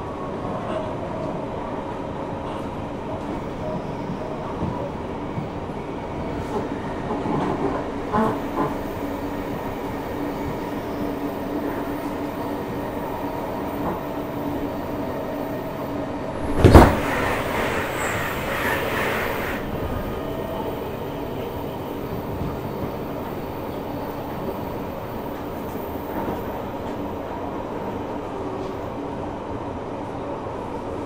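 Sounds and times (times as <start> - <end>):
train wheels rumbling: 2.4 - 27.1
loud thud: 16.4 - 17.4
hissy rushing: 16.4 - 19.8.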